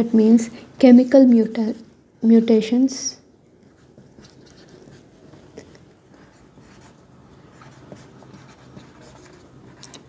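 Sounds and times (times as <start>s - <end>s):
low room hum: 0.0s - 10.0s
marker writing on a whiteboard: 3.6s - 10.0s.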